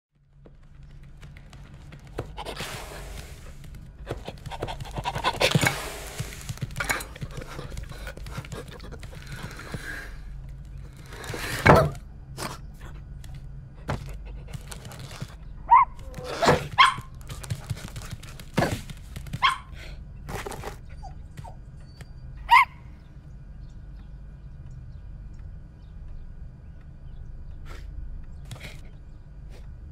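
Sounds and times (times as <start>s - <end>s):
dog yipping: 15.7s - 17.1s, 19.4s - 19.7s, 20.9s - 22.8s.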